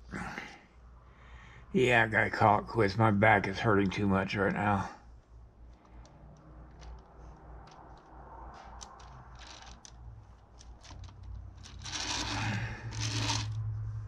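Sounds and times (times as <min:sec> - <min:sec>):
rotating stand rubbing: 0:08.6 - 0:13.6.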